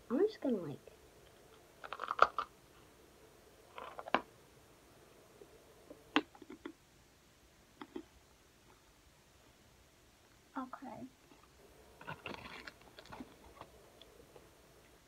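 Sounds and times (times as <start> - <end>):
crunching freeze-dried ice cream: 1.8 - 2.5, 12.0 - 14.1.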